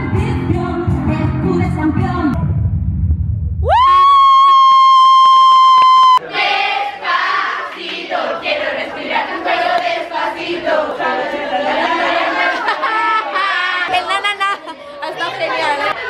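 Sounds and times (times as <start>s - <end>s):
girls singing and calling out: 10.3s - 16.0s.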